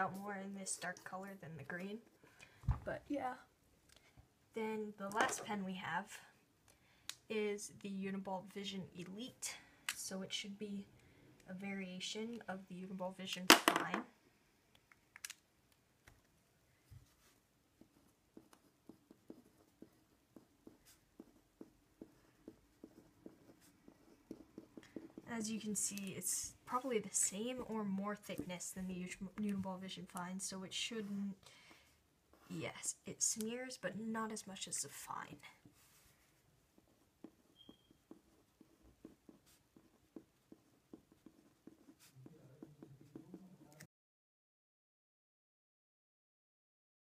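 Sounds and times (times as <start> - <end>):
pen scratching on paper: 17.2 - 30.0, 35.7 - 43.9.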